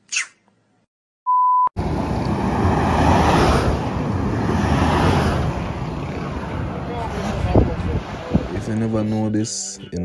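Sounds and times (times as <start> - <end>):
road traffic: 1.8 - 10.0
wind on microphone: 2.3 - 8.7.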